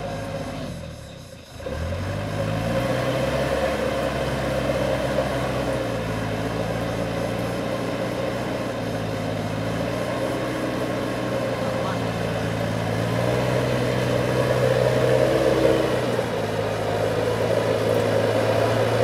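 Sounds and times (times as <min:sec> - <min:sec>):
truck engine straining: 0:00.0 - 0:19.0.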